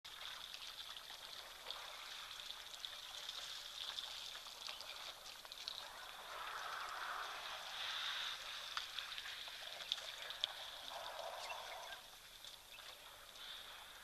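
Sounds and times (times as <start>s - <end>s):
steady hiss: 5.1s - 14.0s.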